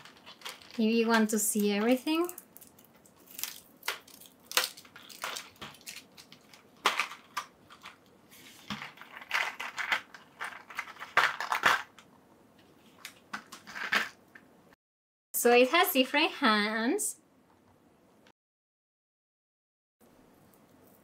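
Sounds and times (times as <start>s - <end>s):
plastic packaging crinkling: 0.0s - 12.1s.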